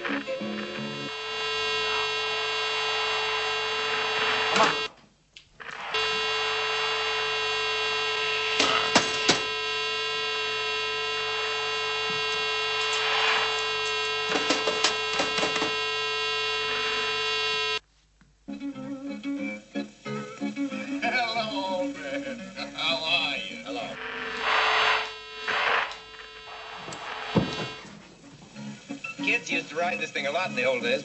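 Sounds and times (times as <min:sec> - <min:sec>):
electronic buzzing tone: 0:00.0 - 0:04.9, 0:05.6 - 0:17.8, 0:21.4 - 0:28.0
sharp clicks: 0:08.6 - 0:09.5, 0:13.6 - 0:15.8.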